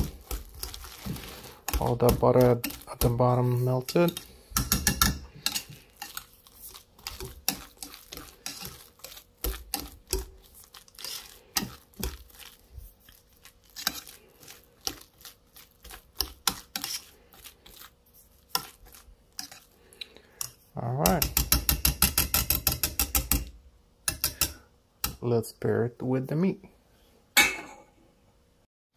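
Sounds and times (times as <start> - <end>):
whisk clicking against glass dish: 3.9 - 6.2, 20.4 - 23.5.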